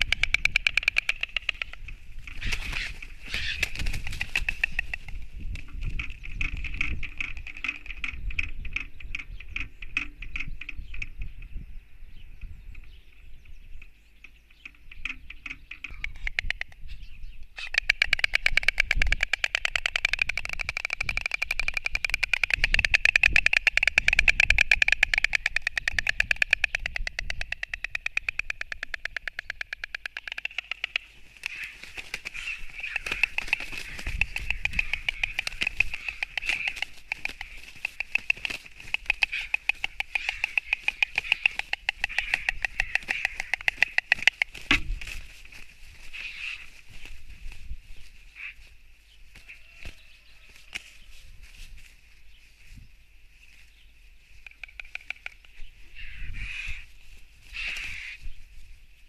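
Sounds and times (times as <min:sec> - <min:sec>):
storks clattering bills: 0:17.6 - 0:46.7.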